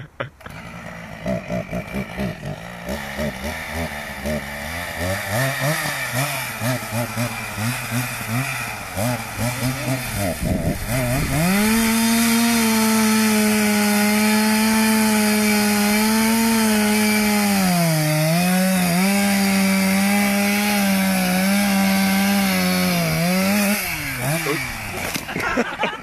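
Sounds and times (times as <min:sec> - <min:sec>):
chainsaw cutting wood: 0:00.0 - 0:26.0.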